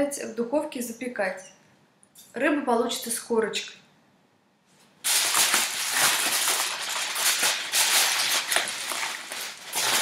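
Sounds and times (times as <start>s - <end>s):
aluminium foil crinkling: 5.0s - 10.0s.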